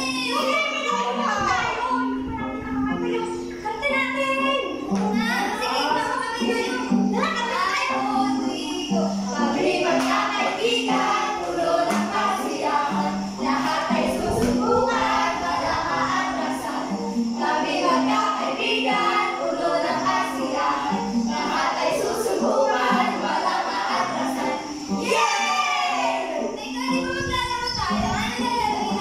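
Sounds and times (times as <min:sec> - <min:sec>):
group singing a song: 0:04.9 - 0:26.7.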